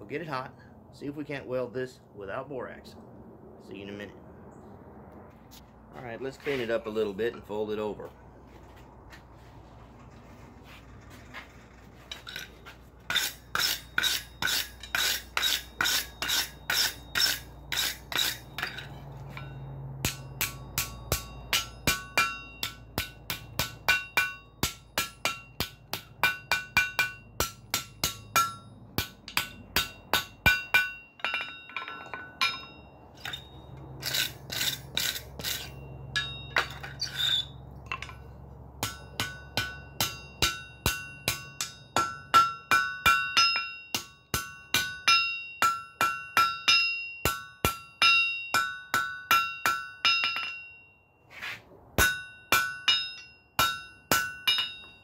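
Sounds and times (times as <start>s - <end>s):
wire brush scrubbing steel: 12.0s - 19.4s, 33.2s - 36.4s
hammer ringing on anvil: 13.1s - 33.8s, 35.5s - 38.2s, 38.8s - 51.1s, 52.0s - 55.0s.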